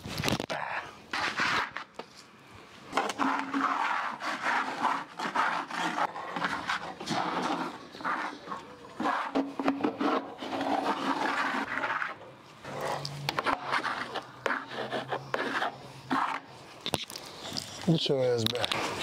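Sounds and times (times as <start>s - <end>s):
cloth scrubbing wooden floor: 3.0s - 16.4s.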